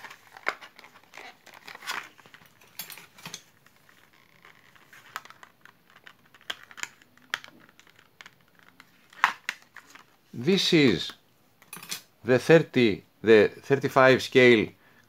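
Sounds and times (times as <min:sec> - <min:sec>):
plastic crinkling: 0:00.0 - 0:10.2.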